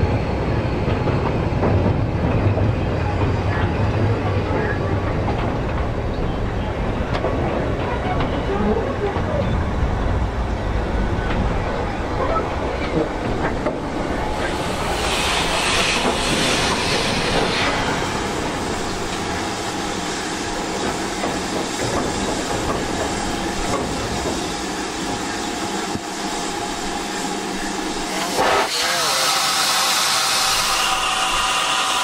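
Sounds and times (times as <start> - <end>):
steam locomotive hissing: 11.7 - 32.0.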